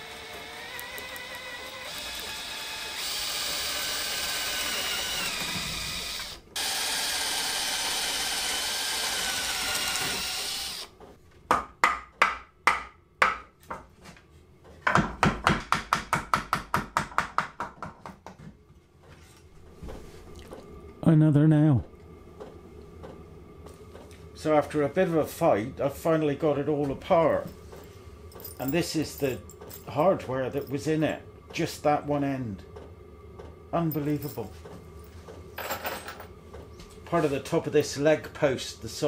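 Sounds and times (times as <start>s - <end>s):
cordless drill boring wood: 0.0s - 11.0s
wooden mallet knocking: 11.5s - 13.5s.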